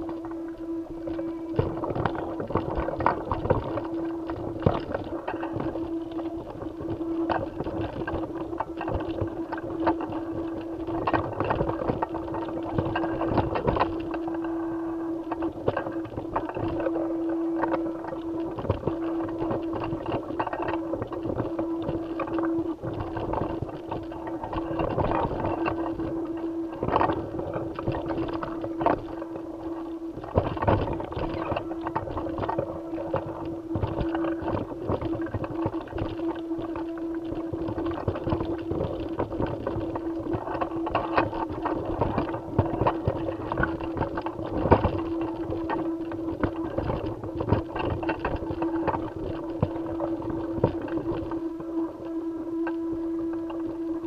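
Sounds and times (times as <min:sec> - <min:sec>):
steady hum: 0:00.0 - 0:54.0.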